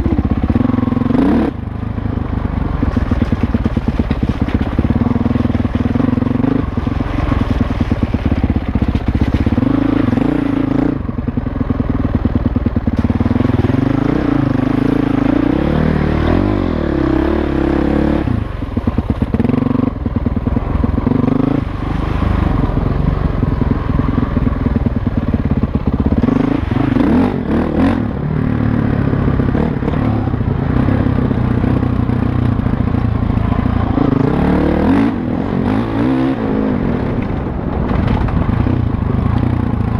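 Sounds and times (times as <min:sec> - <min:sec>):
dirt bike engine revving: 0:00.0 - 0:01.6, 0:02.9 - 0:11.0, 0:13.0 - 0:18.6, 0:19.3 - 0:22.8, 0:26.0 - 0:37.1.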